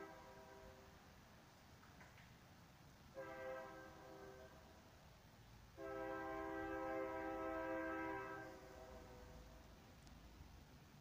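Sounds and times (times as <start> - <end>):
train horn blasts: 0.0 - 0.8, 3.1 - 4.7, 5.8 - 9.5.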